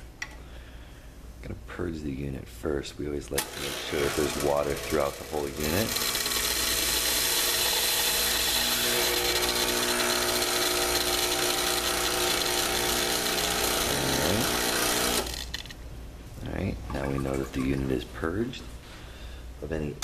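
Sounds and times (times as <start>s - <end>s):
espresso machine pump running: 3.4s - 15.7s.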